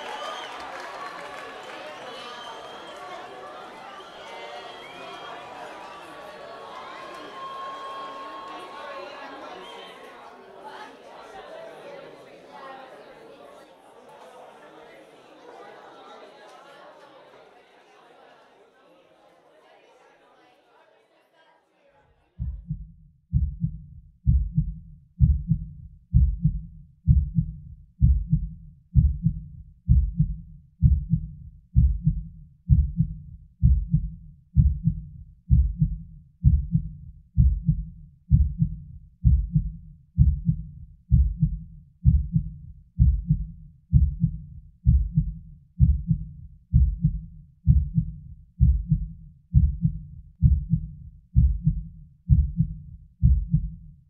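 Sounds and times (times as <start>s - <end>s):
heartbeat thumping: 22.4s - 53.8s.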